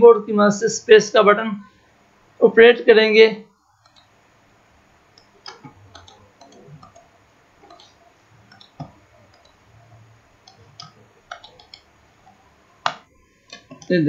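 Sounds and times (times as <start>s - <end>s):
computer mouse clicking: 3.8s - 4.2s, 5.1s - 14.0s.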